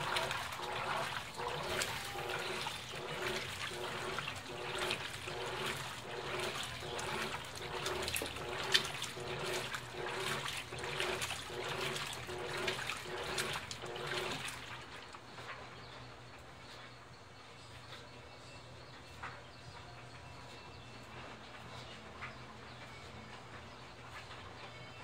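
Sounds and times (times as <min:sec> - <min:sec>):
water sloshing and churning: 0:00.0 - 0:16.4
washing machine motor hum: 0:00.0 - 0:25.0.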